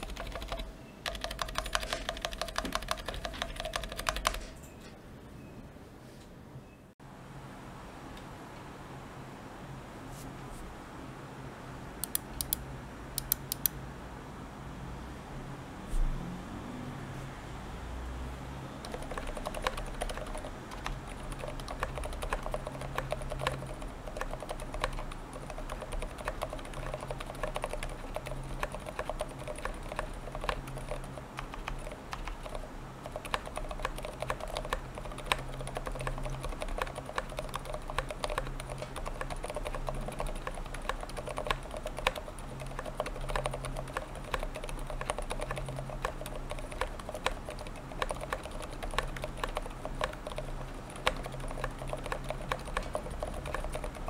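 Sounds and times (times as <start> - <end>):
mechanical keyboard typing: 0.0 - 4.6, 18.8 - 54.0.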